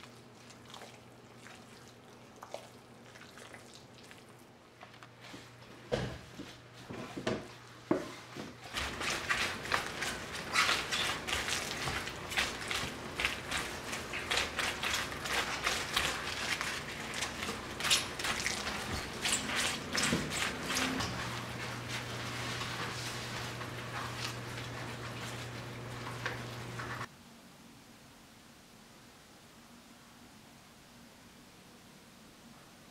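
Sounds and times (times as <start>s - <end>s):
wet squishing of hands rubbing cabbage: 0.0s - 27.1s.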